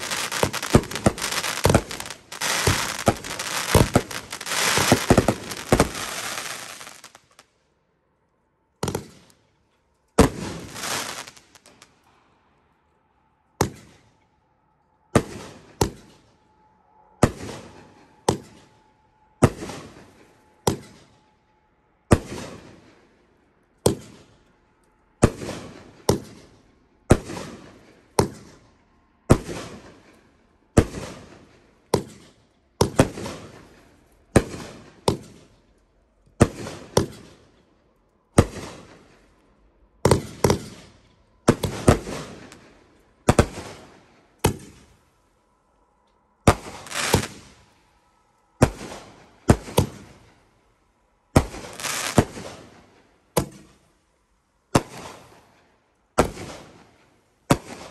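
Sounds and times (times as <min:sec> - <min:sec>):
fireworks bangs: 0:00.0 - 0:07.4, 0:10.2 - 0:11.8, 0:41.5 - 0:44.9, 0:46.5 - 0:47.6, 0:51.4 - 0:52.9.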